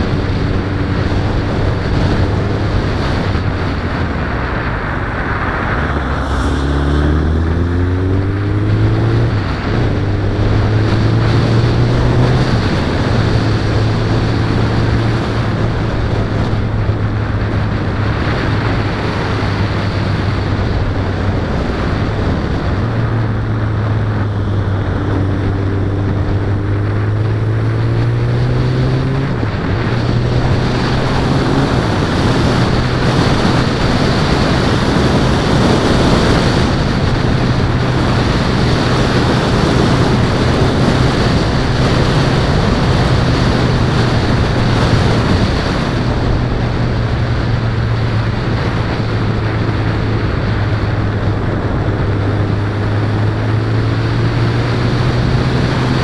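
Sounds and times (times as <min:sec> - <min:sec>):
motorcycle engine accelerating: 0:00.0 - 0:56.0
wind on microphone: 0:00.0 - 0:56.0.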